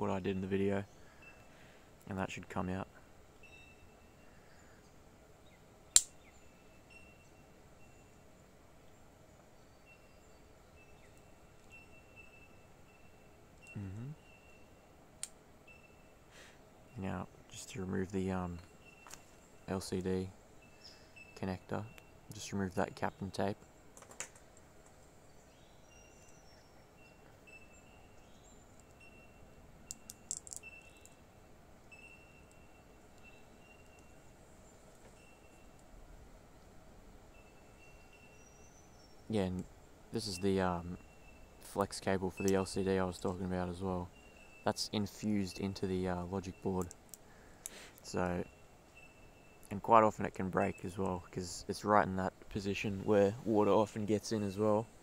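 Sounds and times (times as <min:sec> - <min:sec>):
faint high chirps: 0:00.6 - 0:01.8, 0:02.8 - 0:15.0, 0:15.6 - 0:23.5, 0:25.4 - 0:35.9, 0:37.3 - 0:52.0
sharp click: 0:06.0 - 0:06.2.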